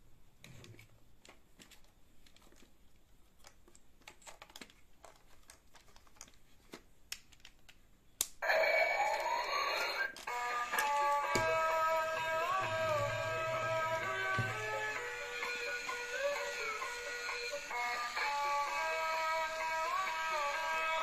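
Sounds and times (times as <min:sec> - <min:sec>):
loud electronic music: 0:10.3 - 0:21.0.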